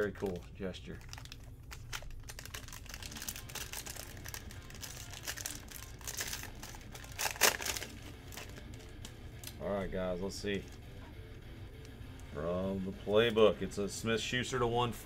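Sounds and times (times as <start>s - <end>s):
foil wrapper crinkling and tearing: 0.0s - 9.6s.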